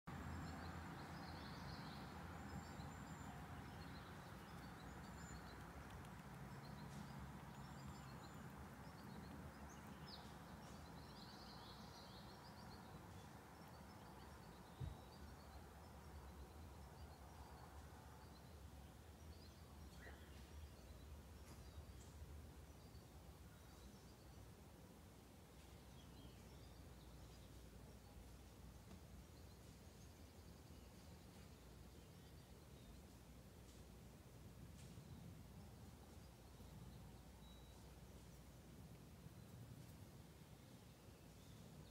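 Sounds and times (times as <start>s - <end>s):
small birds chirping: 0.1s - 41.9s
soft thump: 14.8s - 15.0s.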